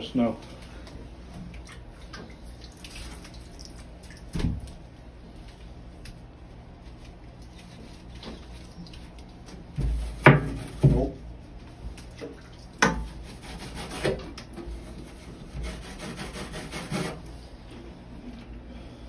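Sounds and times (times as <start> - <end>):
sponge scrubbing on glass: 13.1 - 17.4.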